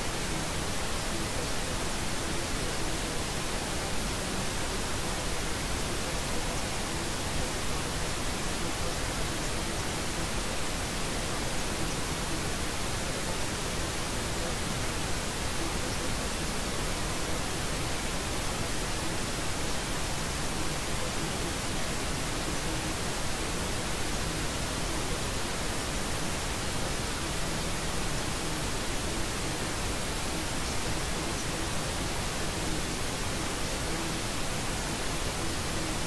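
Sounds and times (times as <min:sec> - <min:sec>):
white noise hiss: 0:00.0 - 0:36.0.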